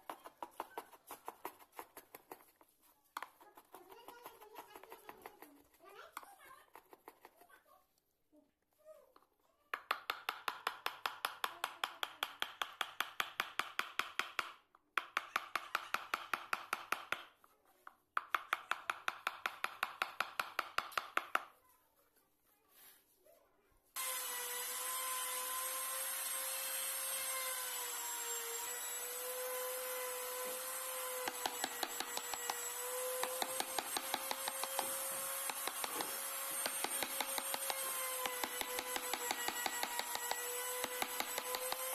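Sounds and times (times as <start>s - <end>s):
chisel cutting wood: 0.0s - 7.4s, 24.0s - 41.9s.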